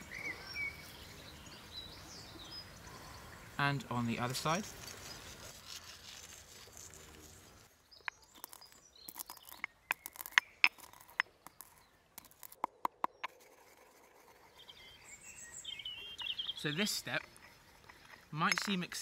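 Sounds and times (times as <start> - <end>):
pestle crushing peppercorns: 8.0 - 13.4.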